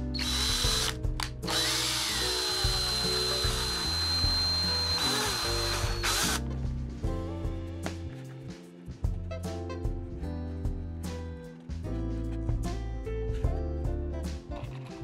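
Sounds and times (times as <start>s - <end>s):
cordless drill motor whining: 0.2s - 6.4s.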